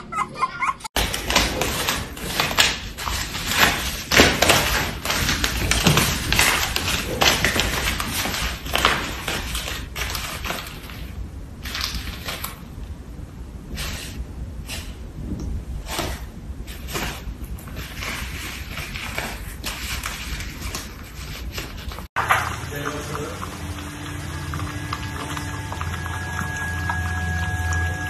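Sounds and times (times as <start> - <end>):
puppy chewing crinkling paper: 1.0 - 12.7, 16.7 - 27.1.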